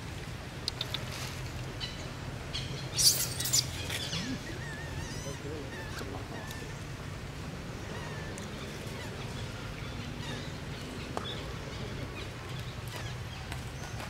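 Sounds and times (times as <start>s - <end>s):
high thin chirps and squeaks: 3.0s - 4.4s.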